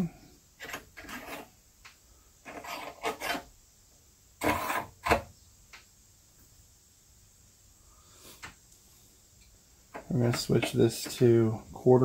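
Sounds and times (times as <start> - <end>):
metal scraping and rubbing: 0.6 - 1.5, 2.4 - 3.5, 4.4 - 5.2.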